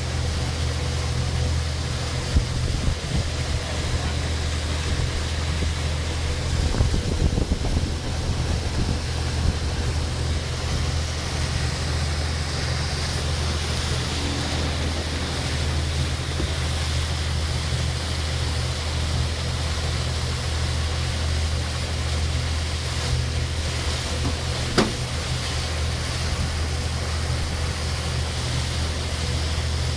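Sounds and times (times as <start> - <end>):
boat engine running: 0.0 - 29.9
wind and water rushing: 0.0 - 29.9
sharp knock: 24.7 - 25.0.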